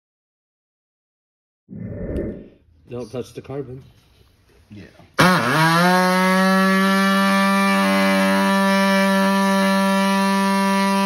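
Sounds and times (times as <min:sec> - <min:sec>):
air cut-off tool whining: 0:05.2 - 0:11.0.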